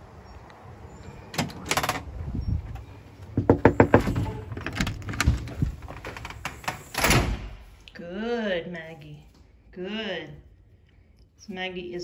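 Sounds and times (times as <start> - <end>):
door knocking and clattering: 3.3 - 6.5.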